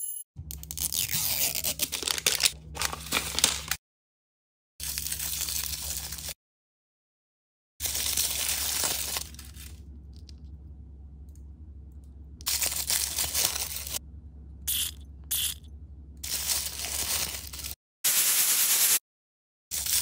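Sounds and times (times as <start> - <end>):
paper wrapping crinkling: 1.4 - 3.8, 4.8 - 6.4, 7.8 - 10.4, 12.4 - 14.0, 16.2 - 19.0, 19.7 - 20.0.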